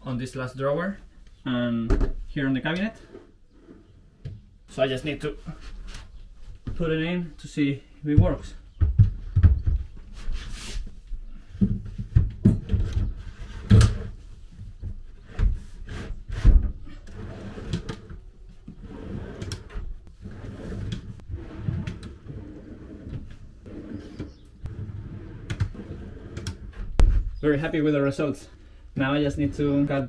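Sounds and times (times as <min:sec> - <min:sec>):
drawer boxes knocking and clunking: 0:11.6 - 0:14.2
drawer slides rolling: 0:15.9 - 0:26.9.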